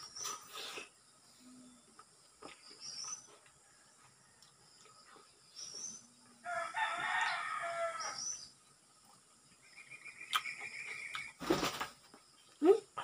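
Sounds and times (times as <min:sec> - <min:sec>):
rooster crowing: 0:06.4 - 0:08.2.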